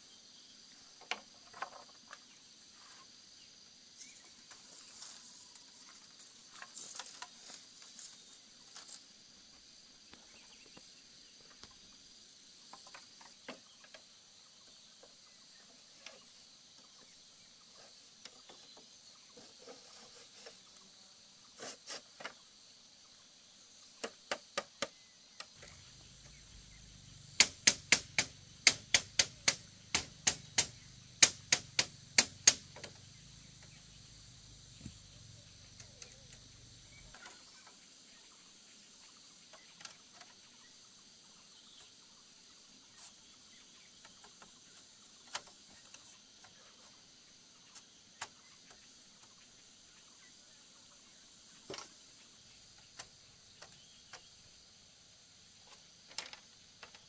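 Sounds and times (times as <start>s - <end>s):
insects droning: 0.0s - 57.0s
bamboo poles clattering: 1.0s - 2.3s, 4.0s - 9.0s, 27.4s - 33.7s.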